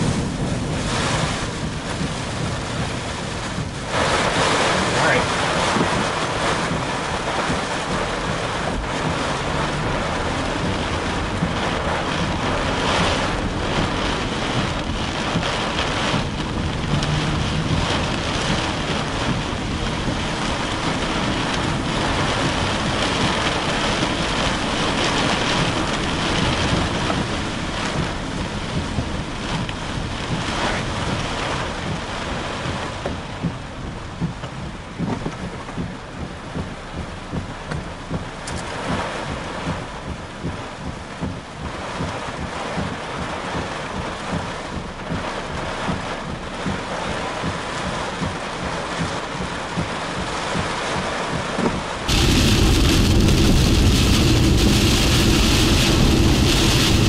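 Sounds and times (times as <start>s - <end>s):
heavy rain and wind on car: 0.0s - 57.0s.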